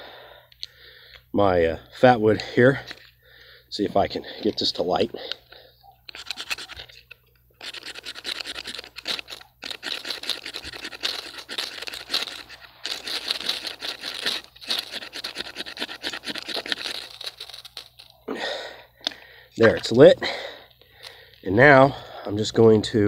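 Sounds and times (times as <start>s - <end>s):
knife scraping ferrocerium rod: 6.1s - 18.1s.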